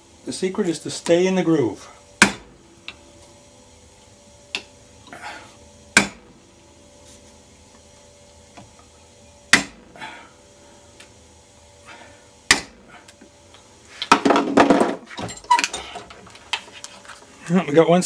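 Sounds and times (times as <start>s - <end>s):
hammer strikes on blade: 2.2s - 2.5s, 6.0s - 6.2s, 9.5s - 9.8s, 12.5s - 12.8s.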